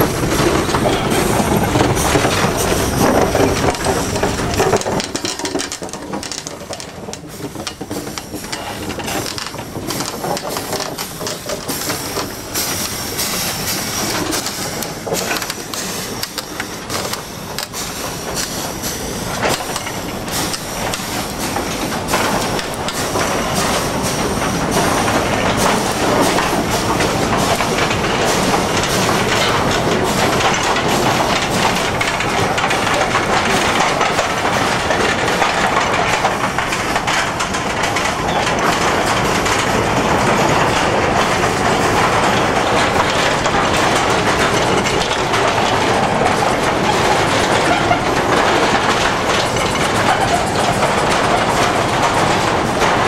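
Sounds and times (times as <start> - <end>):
hissing steam: 0.0 - 5.0, 6.8 - 33.8
wagon wheels and couplings clanking: 0.0 - 53.0.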